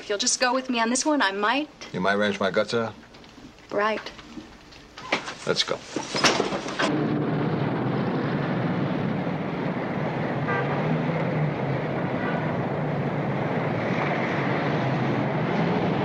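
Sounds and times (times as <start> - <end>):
traffic passing: 4.5 - 16.0.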